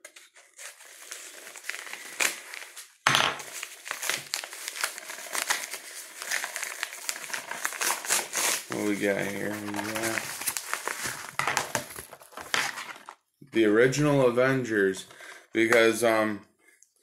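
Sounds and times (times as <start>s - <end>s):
package crinkling and tearing: 0.4s - 13.2s.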